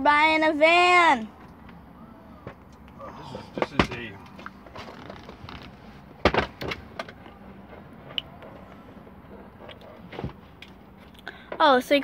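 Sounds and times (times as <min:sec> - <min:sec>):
van seats clunking: 0:02.4 - 0:08.6, 0:09.3 - 0:10.7.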